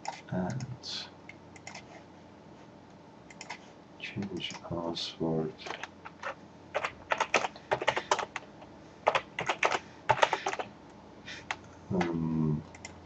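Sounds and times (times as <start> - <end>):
computer keyboard typing: 0.0 - 0.7, 1.6 - 2.0, 3.3 - 3.6, 5.6 - 8.4, 9.0 - 10.7, 11.4 - 13.0.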